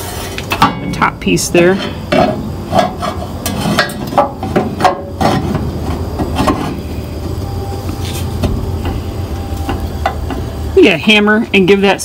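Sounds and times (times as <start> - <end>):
steel frame clinking and scraping: 0.0 - 5.7
steady low rumble: 0.4 - 12.0.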